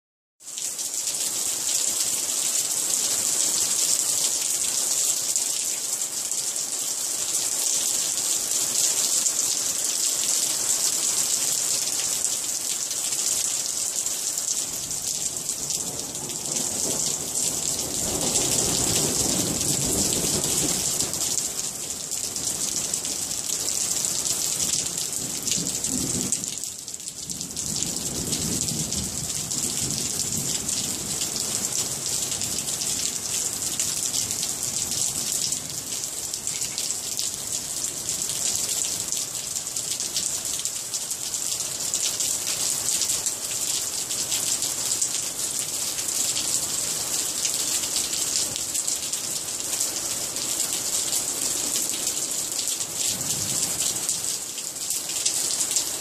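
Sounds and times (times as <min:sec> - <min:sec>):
rain hissing: 0:27.2 - 0:40.0.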